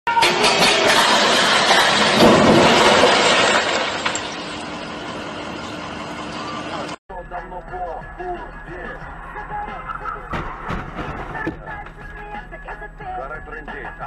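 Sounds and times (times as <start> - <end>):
glass shattering crash: 0.2 - 4.6
falling glass clatter: 0.4 - 4.5.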